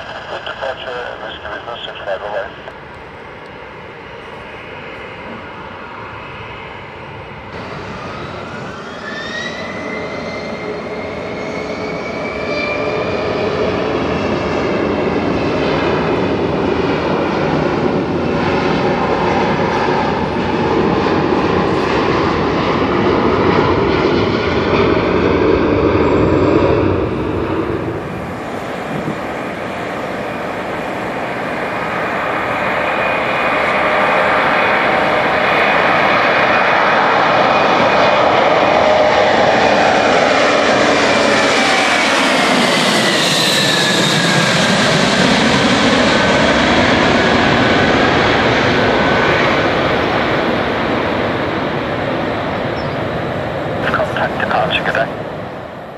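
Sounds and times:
jet noise rushing: 0.0 - 2.9
jet engine turbine whine: 0.0 - 55.9.

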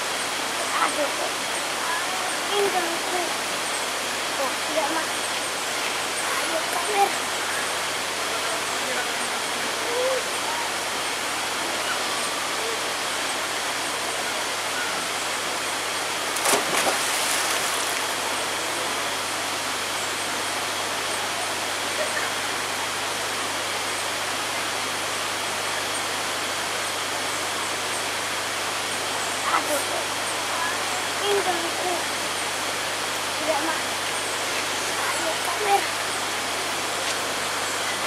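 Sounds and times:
steady hiss: 0.0 - 38.0
water churning: 16.3 - 18.4
splash into pool: 16.4 - 18.0.

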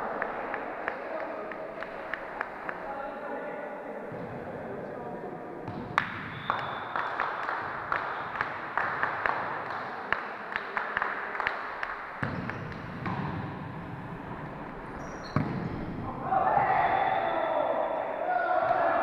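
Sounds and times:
hall hubbub: 0.0 - 12.2
volleyball smacks and thuds: 12.2 - 13.5, 15.3 - 16.1.

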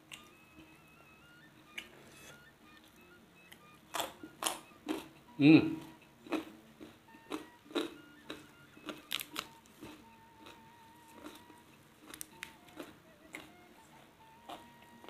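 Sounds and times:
chewing lettuce: 5.8 - 15.0.

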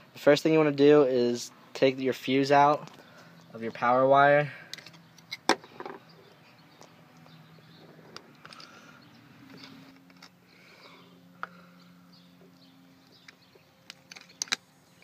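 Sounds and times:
plastic and metal clicks: 13.1 - 14.6.

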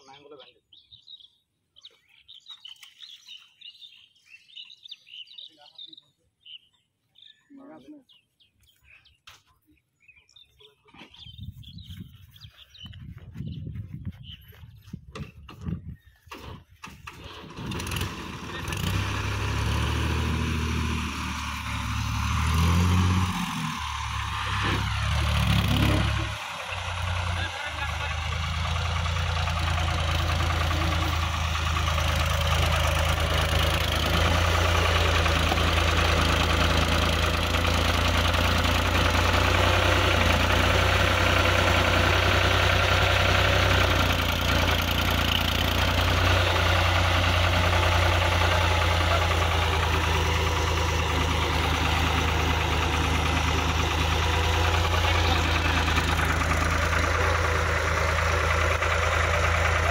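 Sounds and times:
tractor diesel engine idling: 16.7 - 59.9.

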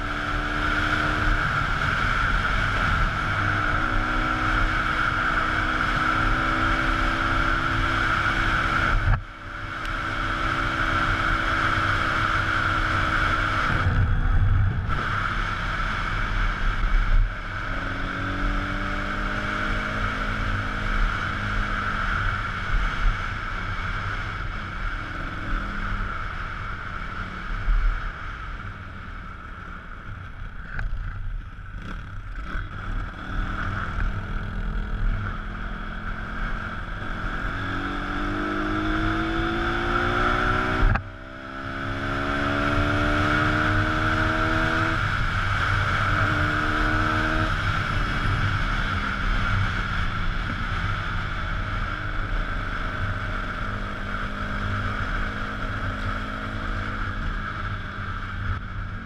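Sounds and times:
wind noise: 0.0 - 29.3
motorbike engine accelerating: 0.0 - 59.0.

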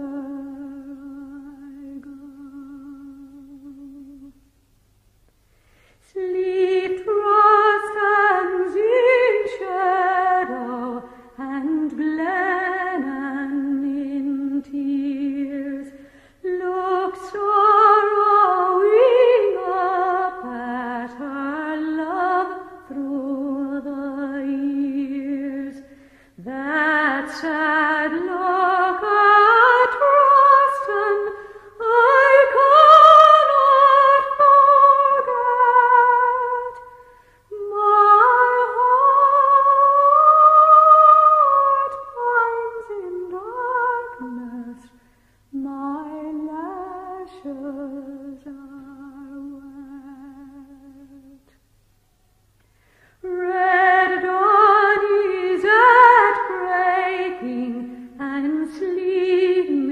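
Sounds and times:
person singing unaccompanied: 6.1 - 51.4.

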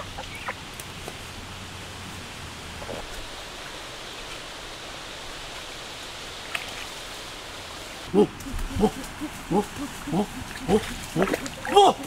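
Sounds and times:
outdoor hiss: 0.2 - 11.1
geese honking: 8.1 - 12.0.

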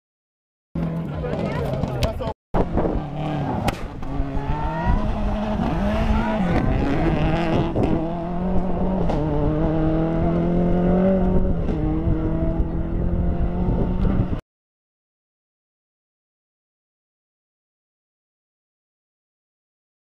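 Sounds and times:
car engine at full throttle: 0.8 - 14.4.

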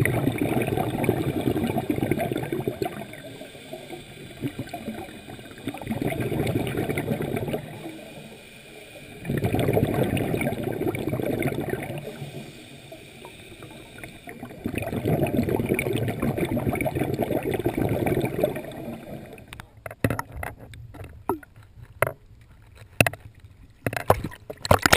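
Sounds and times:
scuba exhaust bubbles underwater: 0.0 - 19.6.

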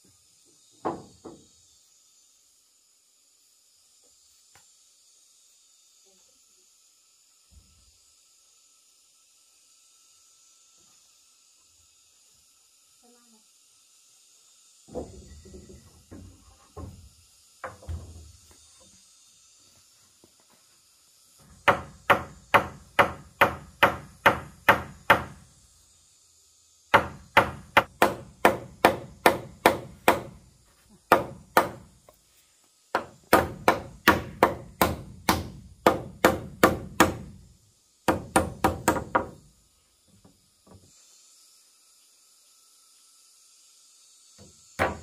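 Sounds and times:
hand tool striking hard: 26.9 - 30.4, 33.0 - 37.3.

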